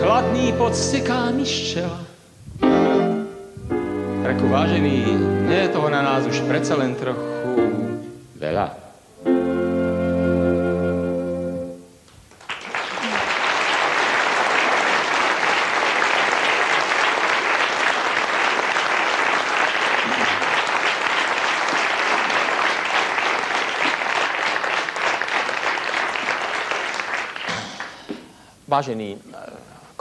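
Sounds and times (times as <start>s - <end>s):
audience applauding: 12.3s - 28.2s.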